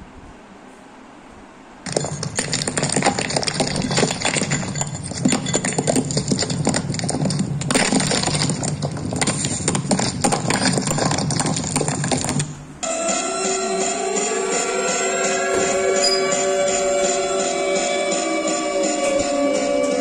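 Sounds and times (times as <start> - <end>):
rattling and clinking: 1.8 - 12.5.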